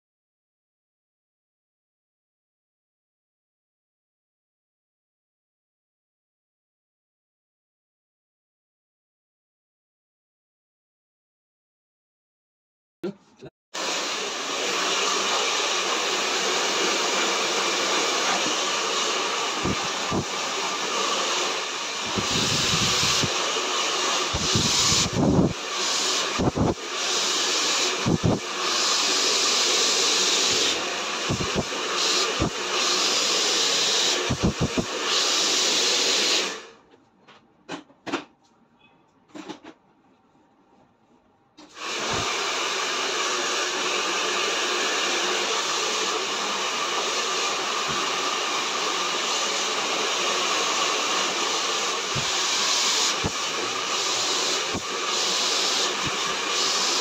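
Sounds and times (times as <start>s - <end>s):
hair dryer blowing: 13.8s - 36.8s, 41.6s - 57.0s.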